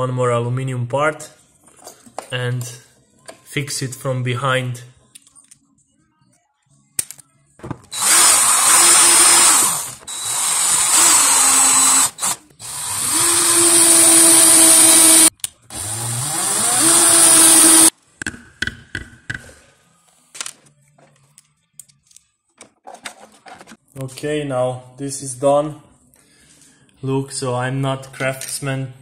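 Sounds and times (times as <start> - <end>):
electric drill whining: 7.9 - 17.9.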